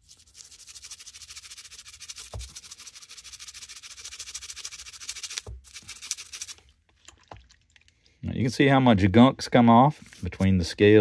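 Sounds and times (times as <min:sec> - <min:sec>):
toothbrush scrubbing metal: 0:00.0 - 0:06.6.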